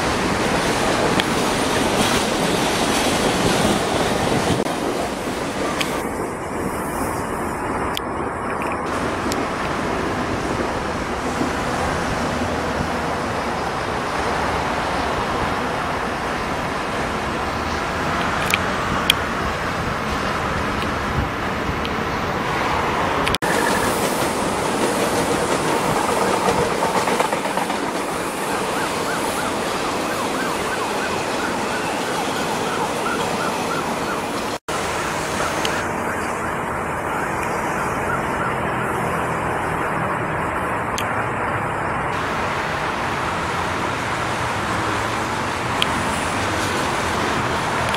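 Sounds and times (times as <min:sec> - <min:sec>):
city traffic: 0:00.0 - 0:47.9
metro trains on track: 0:00.0 - 0:47.9
emergency siren wailing: 0:27.9 - 0:39.9.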